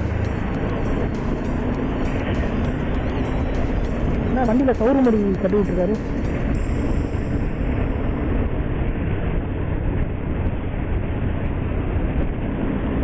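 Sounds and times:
motorcycle engine running: 0.0s - 9.2s
wind and road noise: 0.0s - 13.0s.

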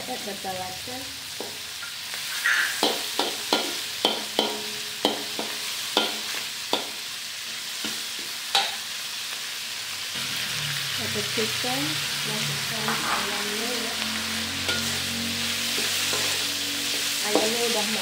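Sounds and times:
food sizzling in a wok: 0.0s - 18.0s
metal spatula clacking on pan: 2.4s - 7.0s, 8.5s - 8.8s, 14.6s - 15.0s.

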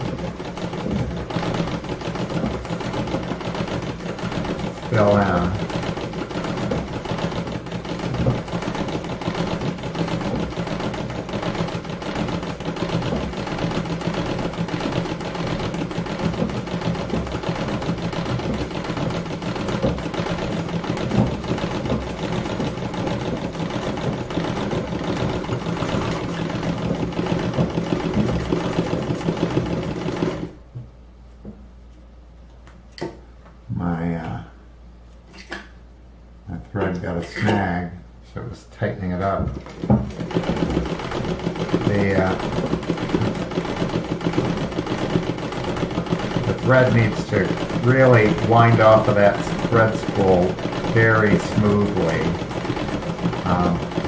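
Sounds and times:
sewing machine stitching: 0.0s - 30.6s, 39.2s - 54.0s.

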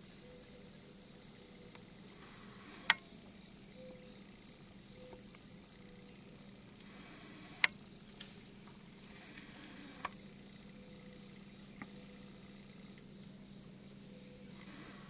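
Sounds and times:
insects chirring: 0.0s - 15.0s
sharp clicks: 2.4s - 3.0s, 7.0s - 8.3s, 9.3s - 10.2s.

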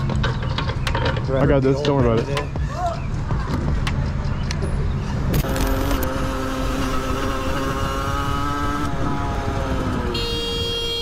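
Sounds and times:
motorcycle engine running: 5.4s - 11.0s
horn honking: 5.5s - 11.0s.

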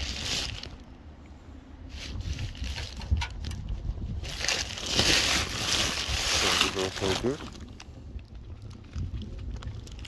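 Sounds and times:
plastic tarpaulin rustling: 0.0s - 0.9s, 1.8s - 7.9s.

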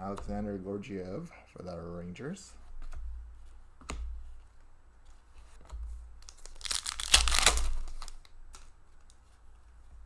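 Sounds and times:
foil wrapper tearing and crinkling: 6.2s - 8.2s.

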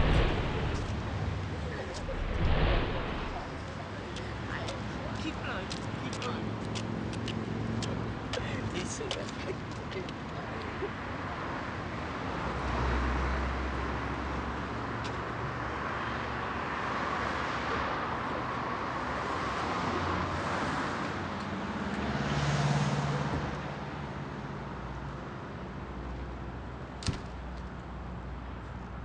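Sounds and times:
car engine: 0.0s - 3.8s
car passing: 0.0s - 6.6s
road noise hum: 0.0s - 29.0s.

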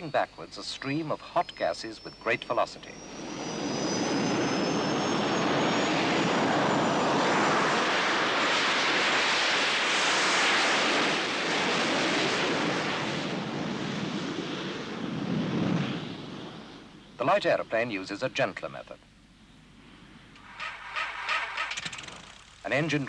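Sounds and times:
thin high whine: 0.5s - 11.3s, 18.8s - 23.0s
jet engine roar: 1.5s - 18.2s, 19.8s - 23.0s.

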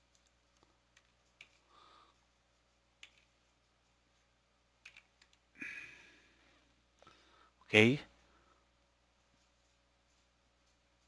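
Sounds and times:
keyboard keystroke clicks: 3.0s - 3.3s, 4.8s - 5.4s.

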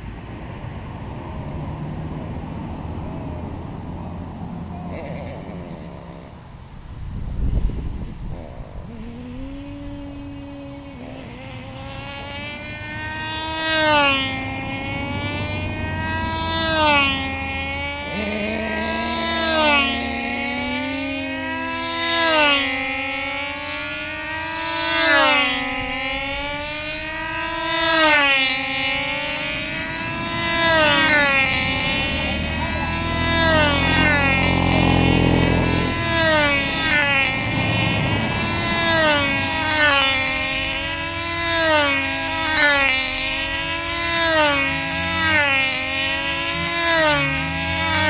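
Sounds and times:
model aircraft engines buzzing: 0.0s - 48.0s.

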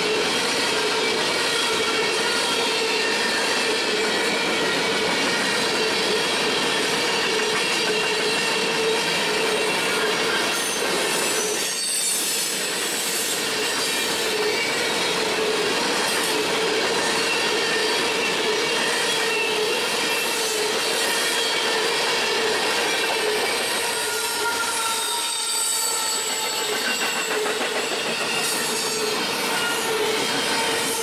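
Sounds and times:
train wheels rumbling on rails: 0.0s - 31.0s
wheel squeal: 7.2s - 15.2s, 17.0s - 31.0s.

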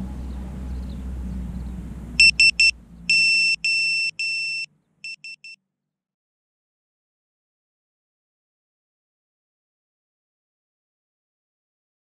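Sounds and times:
piezo buzzer beeping: 2.2s - 5.6s.

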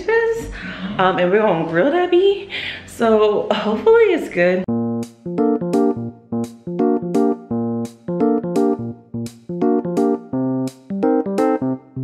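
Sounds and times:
bouncy keyboard chords: 4.7s - 12.0s.

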